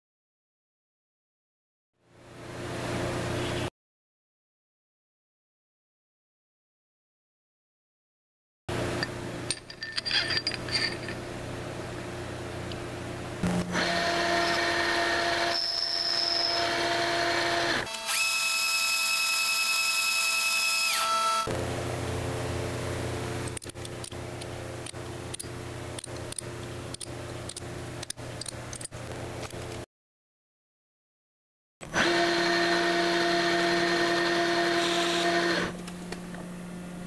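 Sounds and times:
high-pitched lathe whine: 0:13.7 - 0:21.5, 0:32.0 - 0:35.8.

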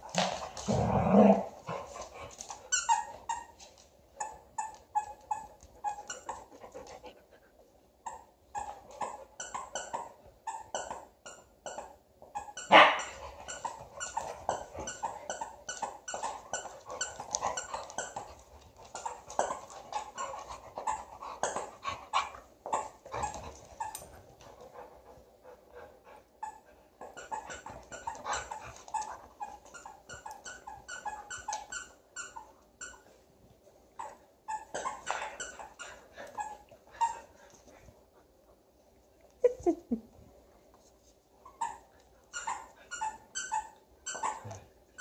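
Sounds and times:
dogs yipping and play growling: 0:00.0 - 0:07.3, 0:07.9 - 0:45.0
dog barking: 0:12.7 - 0:13.1.

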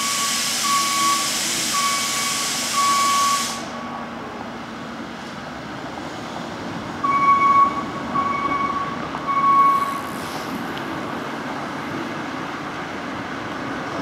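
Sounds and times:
loud high-pitched beeps: 0:00.0 - 0:03.7, 0:07.1 - 0:10.0
city traffic: 0:00.0 - 0:14.0.

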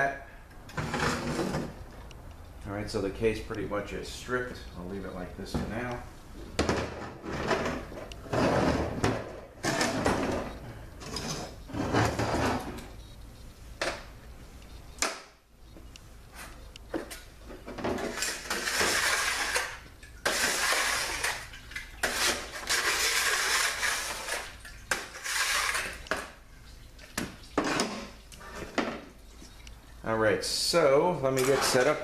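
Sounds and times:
rag rubbing a steel workbench: 0:22.0 - 0:26.0.

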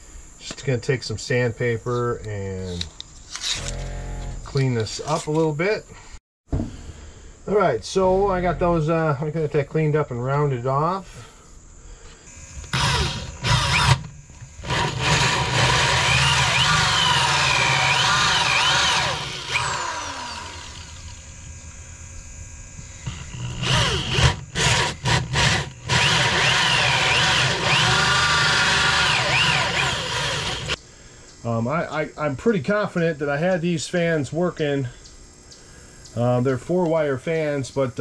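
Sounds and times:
electric drill boring into metal: 0:12.3 - 0:21.4, 0:23.0 - 0:30.8.

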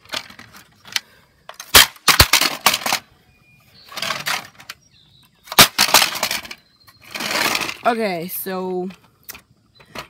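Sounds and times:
plastic parts knocking and clattering: 0:05.5 - 0:06.6.

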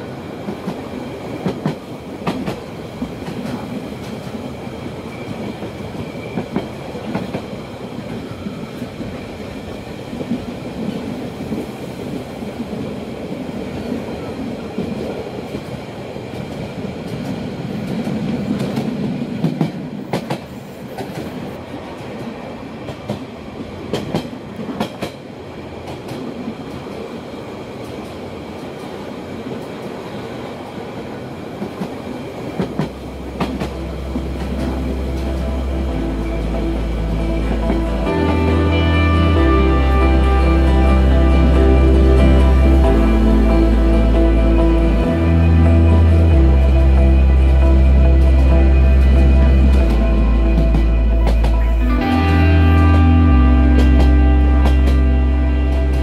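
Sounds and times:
train wheels rumbling on rails: 0:00.0 - 0:56.0
wheels clacking over rail joints: 0:31.6 - 0:38.1, 0:46.4 - 0:53.1.

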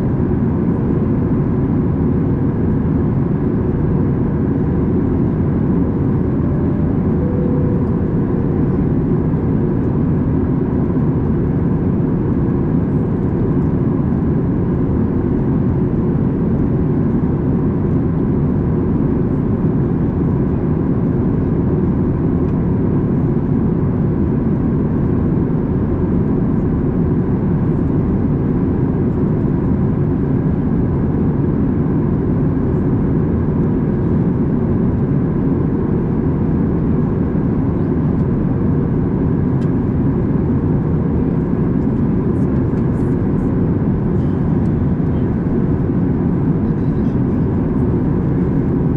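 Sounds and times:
airliner cabin airflow and engines: 0:00.0 - 0:48.9
faint steady hum: 0:03.5 - 0:13.8.

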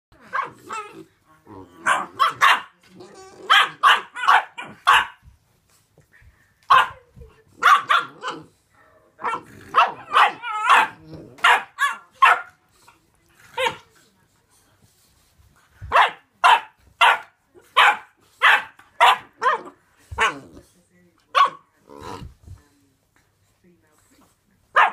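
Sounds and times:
puppies barking: 0:01.8 - 0:02.8, 0:03.5 - 0:05.2, 0:07.6 - 0:08.4, 0:09.2 - 0:12.6, 0:15.9 - 0:20.4.

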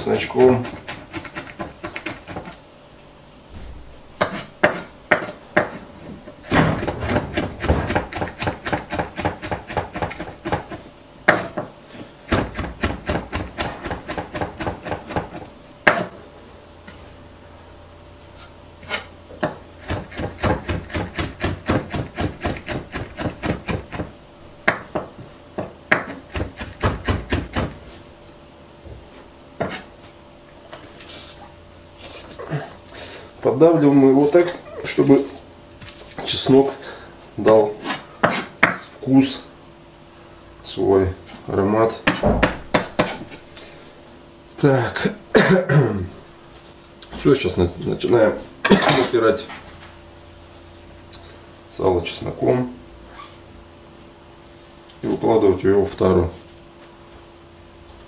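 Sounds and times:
knife chopping on wooden board: 0:00.6 - 0:02.6, 0:04.2 - 0:05.8, 0:06.5 - 0:11.7, 0:12.3 - 0:16.2, 0:18.9 - 0:27.8, 0:29.6 - 0:29.8, 0:38.2 - 0:38.8, 0:42.0 - 0:43.3.

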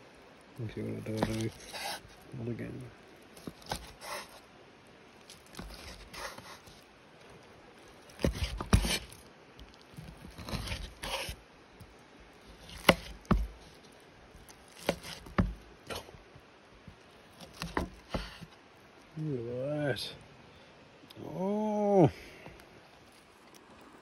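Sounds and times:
blade scraping through meat: 0:00.9 - 0:02.2, 0:03.4 - 0:04.4, 0:05.3 - 0:06.8, 0:08.1 - 0:09.2, 0:10.0 - 0:11.4, 0:12.5 - 0:13.5, 0:14.7 - 0:16.1
cleaver chopping on wooden board: 0:01.1 - 0:02.0, 0:08.2 - 0:09.1, 0:12.6 - 0:13.6, 0:14.8 - 0:15.6, 0:17.4 - 0:18.4.

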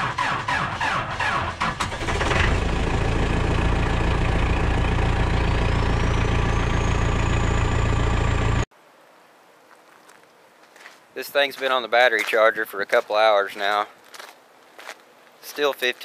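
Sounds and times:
turbocharger whistle: 0:00.0 - 0:08.6
diesel engine starting and idling: 0:00.0 - 0:08.7.

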